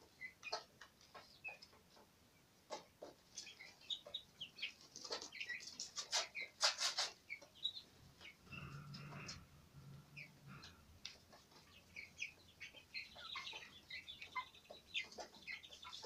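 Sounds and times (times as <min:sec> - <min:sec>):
chicks peeping: 0:00.0 - 0:16.0
low hum: 0:08.4 - 0:11.1.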